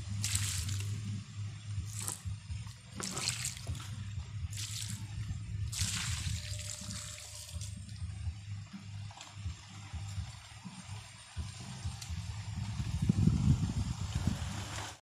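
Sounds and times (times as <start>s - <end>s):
steady low hum: 0.0s - 14.9s
water splashing onto soil: 0.2s - 1.0s, 1.9s - 2.2s, 3.0s - 3.9s, 4.5s - 5.1s, 5.7s - 7.9s.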